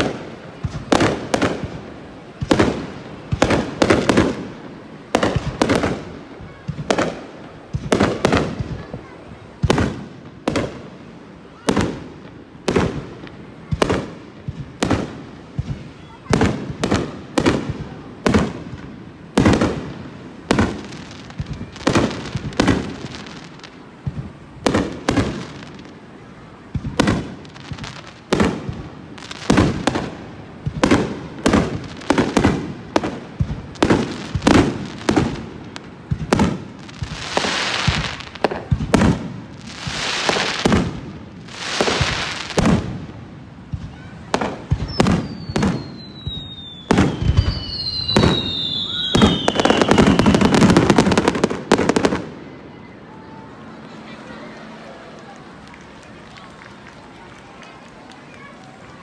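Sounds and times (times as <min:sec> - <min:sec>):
fireworks hissing: 0:00.0 - 0:54.9
fireworks bangs: 0:00.0 - 0:59.0
fireworks crackle: 0:00.0 - 0:59.0
falling whistles: 0:44.9 - 0:50.9.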